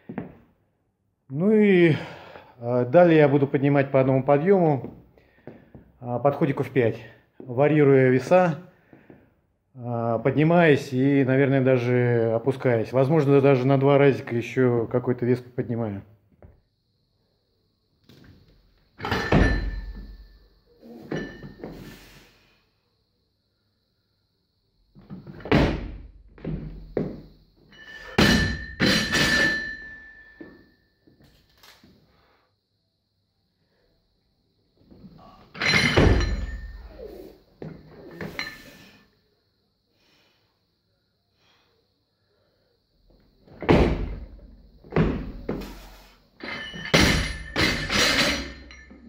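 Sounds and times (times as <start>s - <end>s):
metallic ring of bar and plates: 19.0s - 21.8s, 27.7s - 30.8s, 35.6s - 37.3s, 46.4s - 49.0s
barbell thudding on platform: 28.2s - 29.7s, 43.6s - 45.7s, 46.8s - 48.8s.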